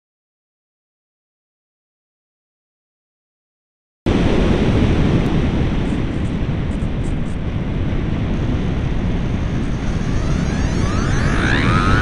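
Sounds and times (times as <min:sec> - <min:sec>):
wind rushing over microphone: 0:04.1 - 0:12.0.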